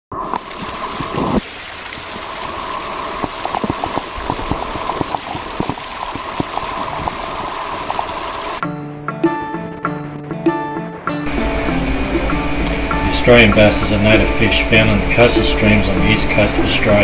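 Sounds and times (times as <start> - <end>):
steady hiss of water: 0.1 - 8.6, 11.3 - 17.0
small water drips and ticks: 0.2 - 8.6.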